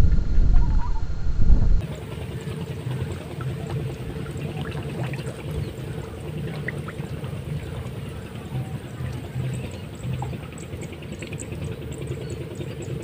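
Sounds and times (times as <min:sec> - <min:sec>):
water trickling and lapping: 0:01.8 - 0:13.0.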